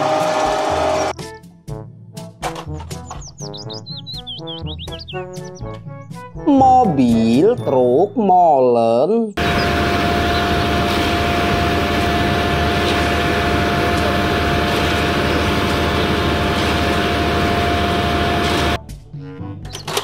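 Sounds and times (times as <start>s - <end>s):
concrete mixer truck running: 9.4s - 18.8s
steady whine: 9.4s - 18.8s.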